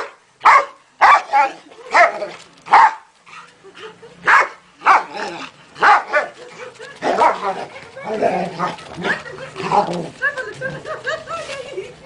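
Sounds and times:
dog barking: 0:00.0 - 0:02.1, 0:02.7 - 0:03.1, 0:04.3 - 0:05.2, 0:05.8 - 0:06.3.

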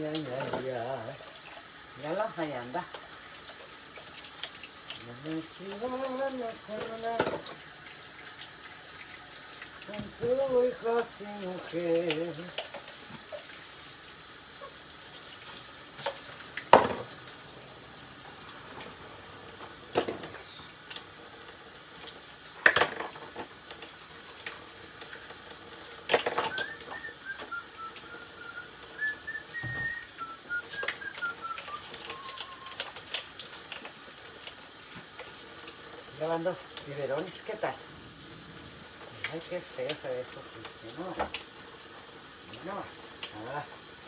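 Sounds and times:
steady hiss: 0:00.0 - 0:44.0
dishes and bottles knocking: 0:07.2 - 0:07.5, 0:16.7 - 0:17.1
person whistling notes: 0:26.4 - 0:33.0.

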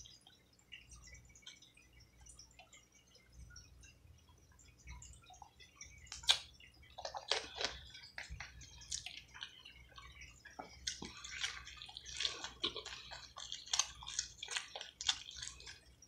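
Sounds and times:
wet chewing and mouth smacking: 0:05.4 - 0:16.0.

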